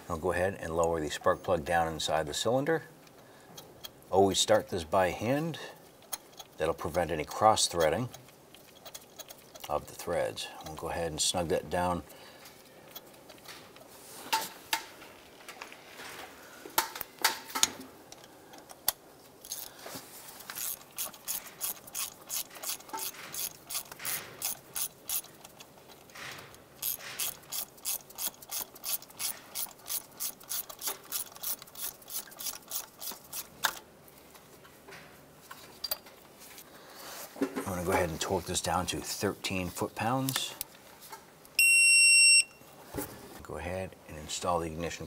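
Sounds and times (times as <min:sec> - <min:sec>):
hand ratchet clicking: 0:18.2 - 0:19.7, 0:20.4 - 0:26.1, 0:26.8 - 0:33.8.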